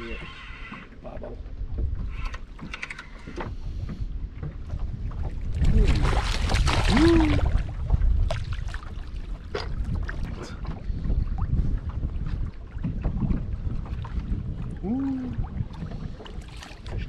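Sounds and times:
wind buffeting microphone: 0.9 - 17.0
fish thrashing and splashing: 5.6 - 9.0.

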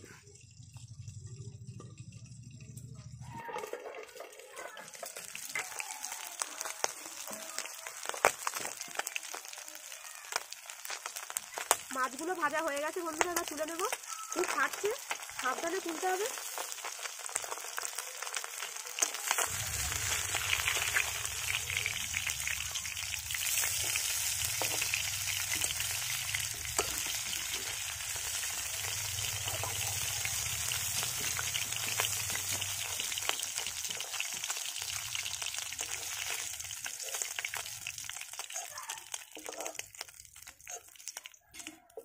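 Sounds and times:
fish sizzling in hot oil: 0.0 - 42.0.

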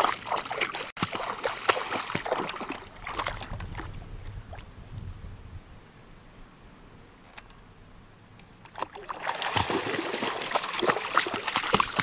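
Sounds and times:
dog splashing through water: 0.0 - 3.9, 8.8 - 12.0.

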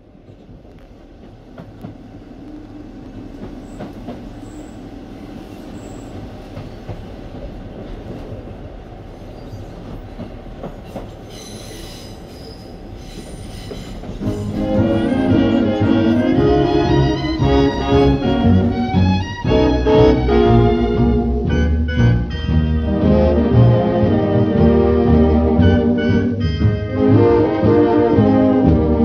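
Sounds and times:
train rumbling on rails: 0.0 - 29.0
wheel squeals: 11.3 - 15.7
orchestral music with brass: 14.2 - 29.0.

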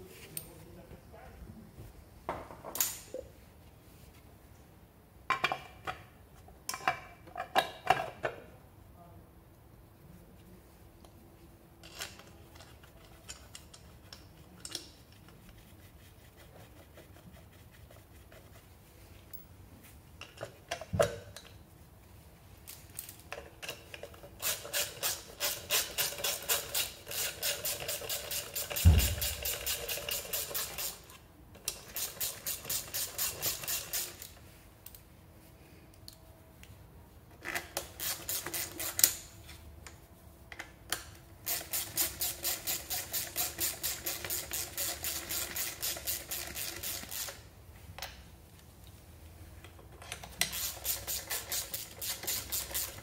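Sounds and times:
ratchet wrench clicking: 24.4 - 31.1, 37.8 - 39.3, 41.4 - 47.4, 50.4 - 53.0.

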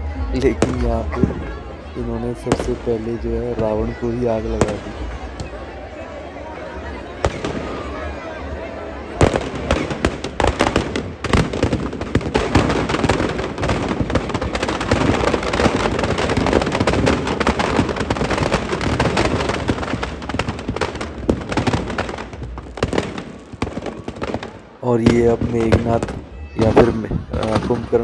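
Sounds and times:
firecrackers crackling and popping: 0.0 - 28.0
loud bangs: 9.1 - 28.0.

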